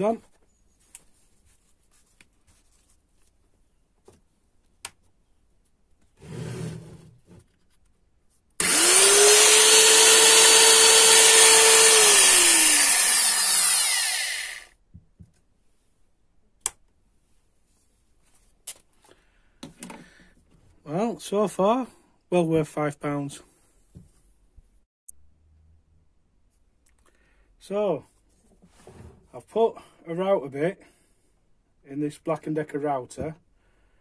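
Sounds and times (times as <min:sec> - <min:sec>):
router motor whining: 0:08.6 - 0:14.8.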